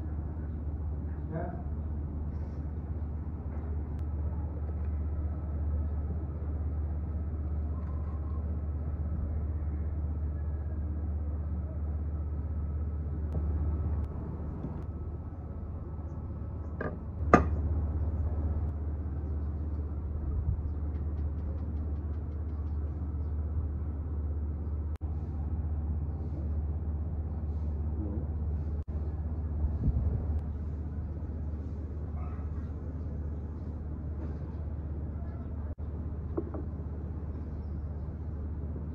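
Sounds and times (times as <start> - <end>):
low background rumble: 0.0 - 38.9
wooden serving ware knocking: 16.8 - 17.6.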